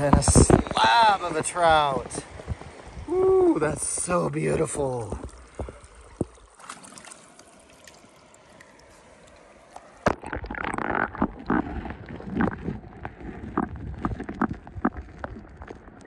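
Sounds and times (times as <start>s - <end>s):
underwater gurgling and bubbling: 0.0s - 6.5s, 9.8s - 16.0s
river water: 0.0s - 16.0s.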